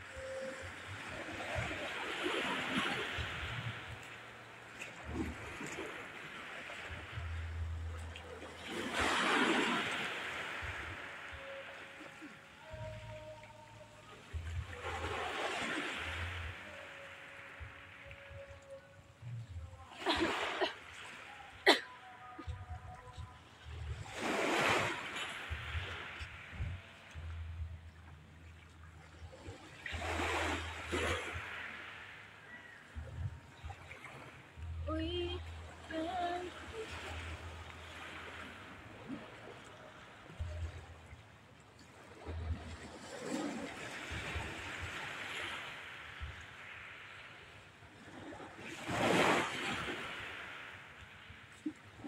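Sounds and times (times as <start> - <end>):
waves on pebble shore: 0.0 - 27.7, 29.1 - 52.0
low rumbles on microphone: 25.5 - 29.3.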